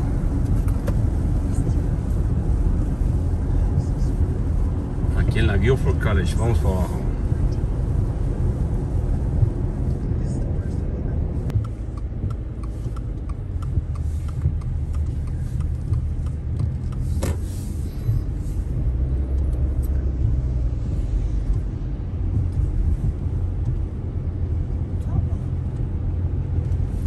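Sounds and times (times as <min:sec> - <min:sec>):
car road and engine rumble: 0:00.0 - 0:27.0
light regular ticking: 0:11.4 - 0:27.0
tyre hiss on wet road: 0:11.7 - 0:21.4.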